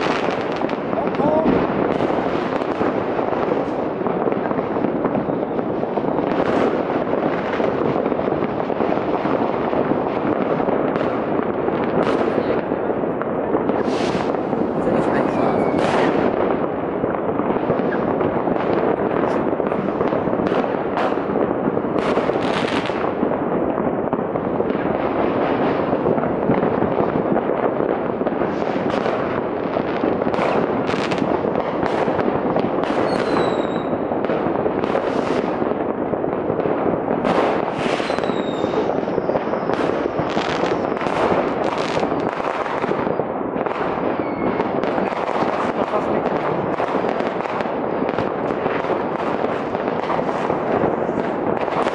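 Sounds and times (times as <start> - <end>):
distant fireworks crackling: 0.0 - 51.9
firework bangs: 0.0 - 51.9
falling firework whistles: 13.8 - 14.3, 15.3 - 16.1, 32.9 - 34.0, 37.7 - 41.2, 44.1 - 44.7.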